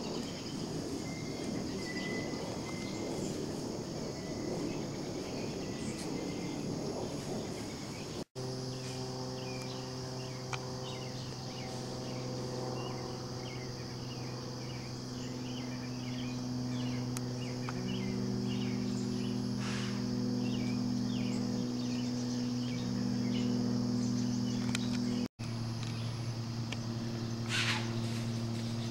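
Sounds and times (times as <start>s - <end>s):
constant high drone: 0.0s - 28.9s
insects chirping: 0.0s - 28.9s
low held tones: 9.0s - 28.9s.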